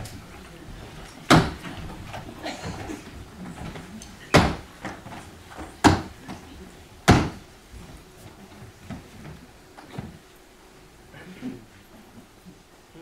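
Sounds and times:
light knocks and shuffling: 0:00.0 - 0:10.5
loud thumps of folding chairs: 0:00.8 - 0:10.2.

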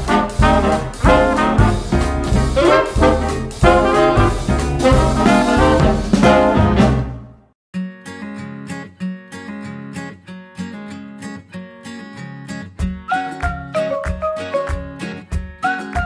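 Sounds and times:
upbeat music with strong beat: 0:00.0 - 0:07.2, 0:12.8 - 0:16.0.

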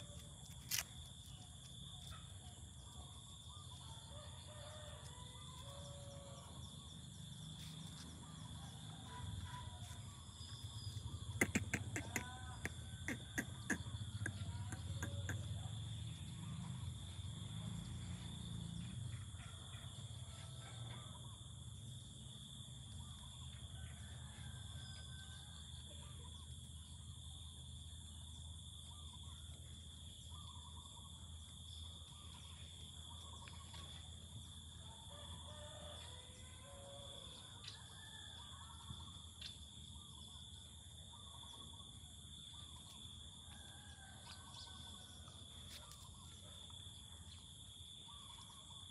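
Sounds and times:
short bird-like calls: 0:10.6 - 0:15.7.

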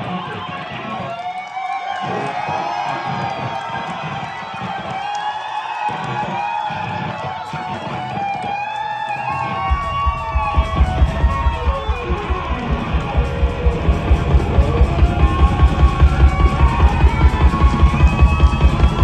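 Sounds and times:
electric guitar lead with bends: 0:06.3 - 0:19.0.

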